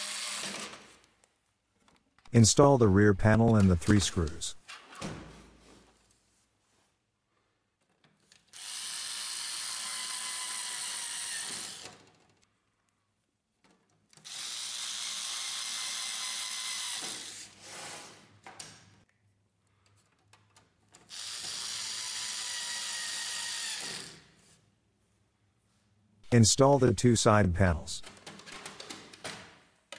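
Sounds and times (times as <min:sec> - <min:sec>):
electric screwdriver motor whine: 0:08.6 - 0:11.9, 0:14.3 - 0:17.4, 0:21.1 - 0:24.2.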